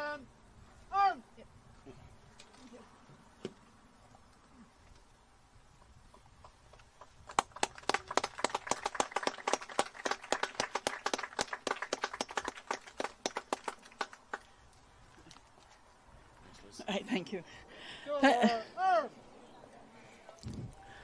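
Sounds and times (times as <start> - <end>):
small crowd applauding: 6.4 - 14.6.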